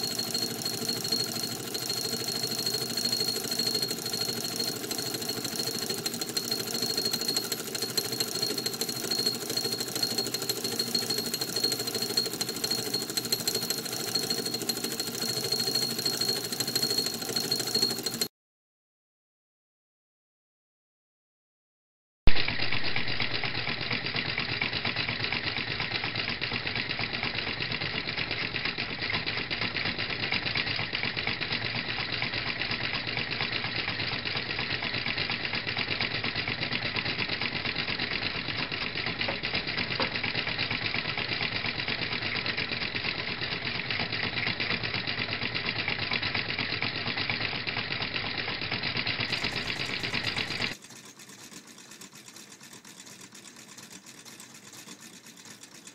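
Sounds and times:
stirling engine mechanical clatter: 0.0 - 18.3, 36.7 - 55.9.

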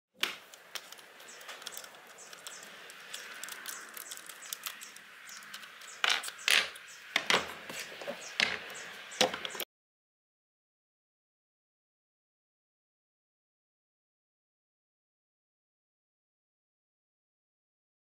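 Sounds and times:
tools scraping on wood: 0.2 - 9.6.

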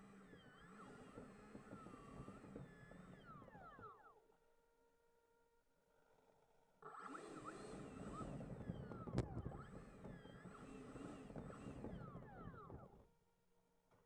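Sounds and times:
electric ducted fan whining: 6.8 - 13.1.

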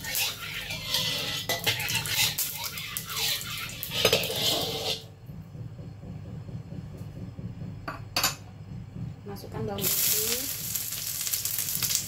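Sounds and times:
metal spatula scraping a wok: 0.0 - 5.2.

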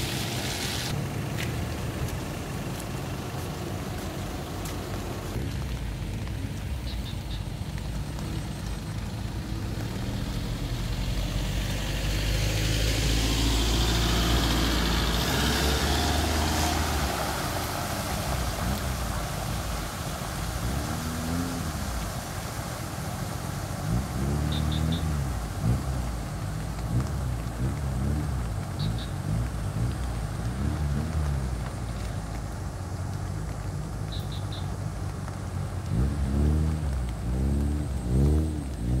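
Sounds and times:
tyres hissing through water: 0.0 - 1.0, 2.0 - 39.0
truck engine passing: 8.0 - 22.1, 35.2 - 39.0.

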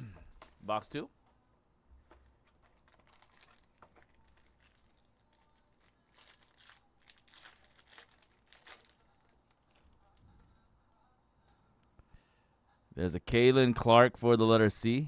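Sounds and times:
foil wrapper crinkling and tearing: 2.7 - 9.9.

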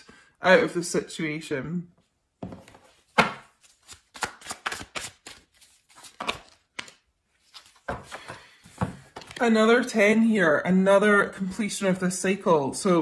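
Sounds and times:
cards being shuffled: 2.6 - 9.4.

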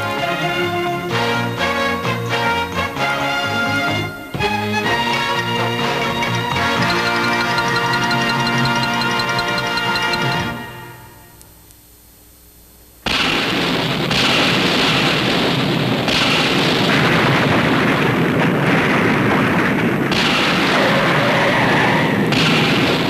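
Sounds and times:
loud thunder rumbling: 13.5 - 23.0.

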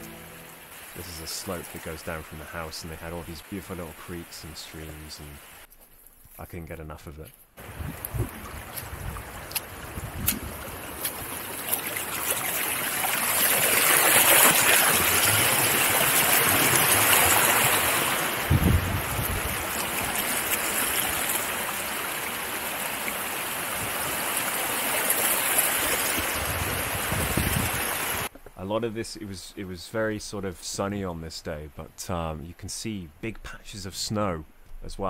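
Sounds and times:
creek rushing and splashing: 0.0 - 5.7, 7.6 - 28.3.

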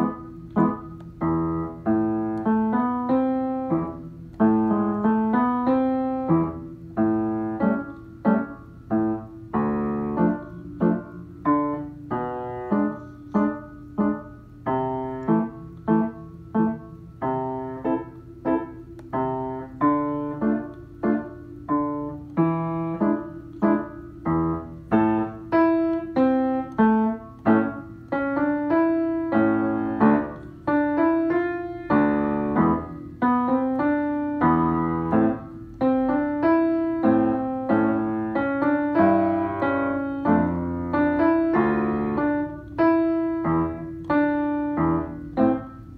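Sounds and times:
piano playing: 0.0 - 45.9.

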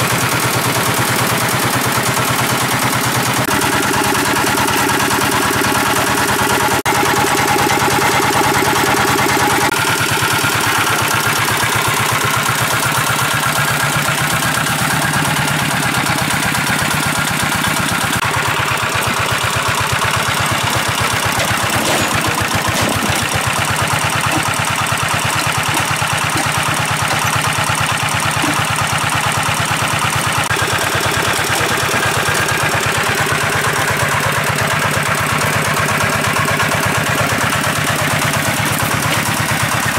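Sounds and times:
water pump engine pulsing: 0.0 - 39.9.

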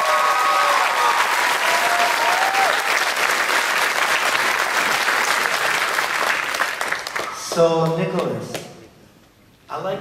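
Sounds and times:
crowd applause: 0.0 - 7.5.

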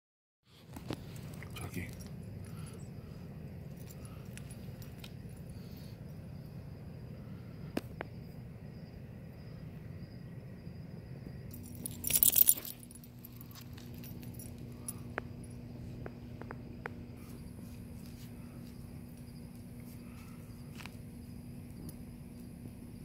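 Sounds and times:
low background hum: 0.5 - 23.0
dog tags jingling: 11.5 - 15.6.

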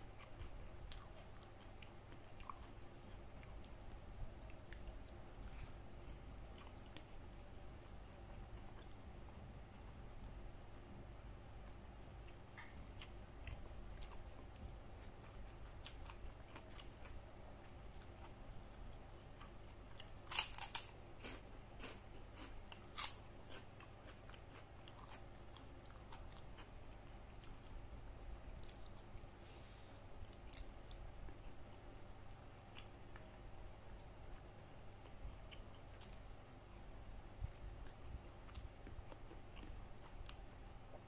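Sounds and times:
crisp cracker crunches: 20.2 - 23.6.

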